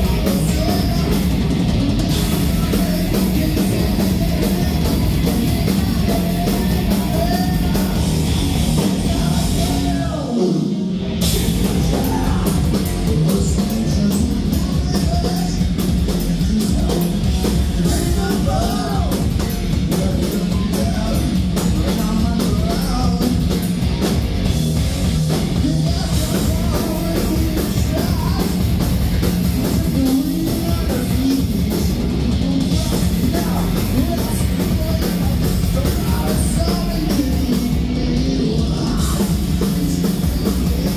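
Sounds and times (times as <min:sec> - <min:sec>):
bass guitar: 0:00.0 - 0:40.9
drum kit: 0:00.0 - 0:40.9
electric guitars: 0:00.0 - 0:40.9.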